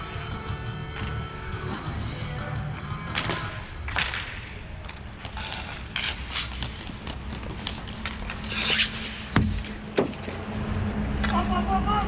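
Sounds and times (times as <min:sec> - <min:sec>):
hockey sticks and puck clacking: 0:03.0 - 0:10.4.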